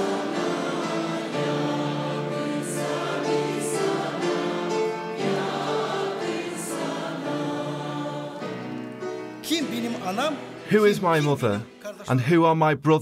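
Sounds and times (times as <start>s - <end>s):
choir singing a hymn: 0.0s - 11.9s
man speaking: 9.4s - 13.0s.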